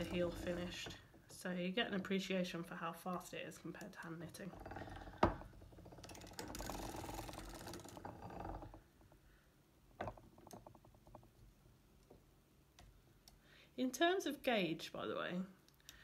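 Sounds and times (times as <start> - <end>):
knitting machine needles clattering: 0.0 - 9.2.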